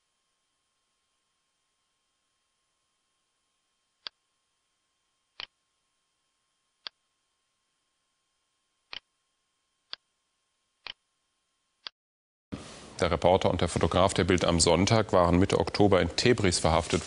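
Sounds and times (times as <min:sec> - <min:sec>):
faint steady hiss: 0:12.6 - 0:17.0.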